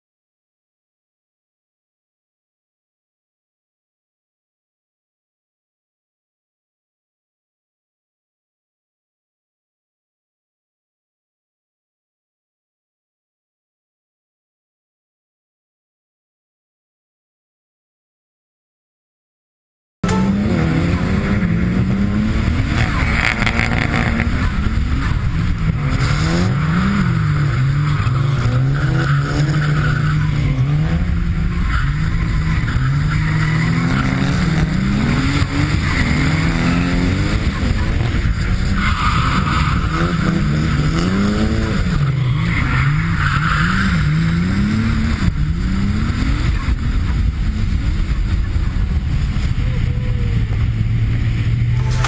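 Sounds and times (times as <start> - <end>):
car engine revving: 20.3 - 49.6.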